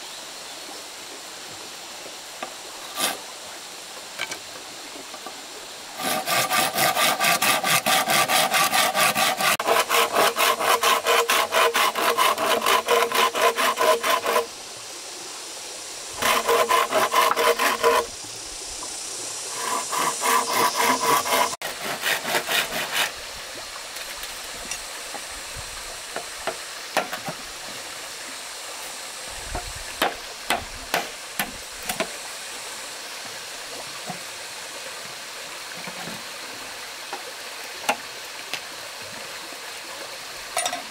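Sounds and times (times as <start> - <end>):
hand saw cutting wood: 2.8 - 3.3, 6.0 - 14.5, 16.2 - 18.1, 19.5 - 23.2, 30.0 - 32.1.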